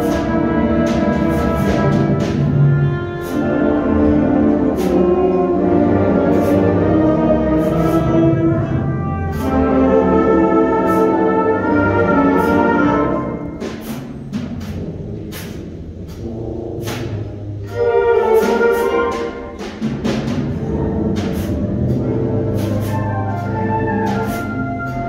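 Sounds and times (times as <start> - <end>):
light percussion strokes: 12.3 - 25.0.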